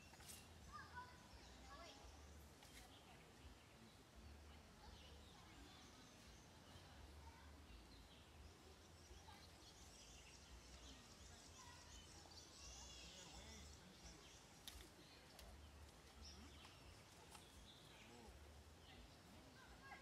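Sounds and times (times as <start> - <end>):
distant birds chirping: 0.0 - 20.0
faint sharp clicks: 14.6 - 17.7.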